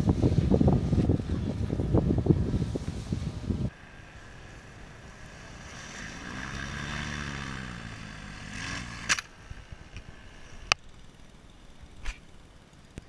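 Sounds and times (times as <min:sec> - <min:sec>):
paramotor engine revving: 0:03.8 - 0:10.8.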